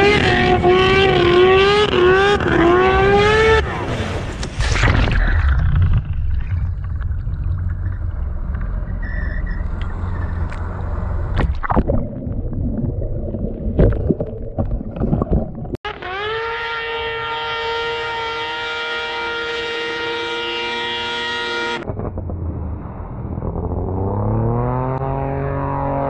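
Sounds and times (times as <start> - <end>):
water churning and splashing: 3.7 - 8.9, 10.0 - 15.8
low rumble: 4.3 - 15.8, 21.8 - 25.8
snowmobile engine: 15.9 - 26.0.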